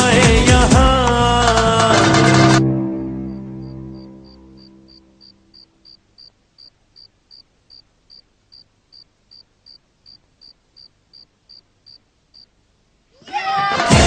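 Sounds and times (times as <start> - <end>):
cricket chirping: 3.2 - 12.7.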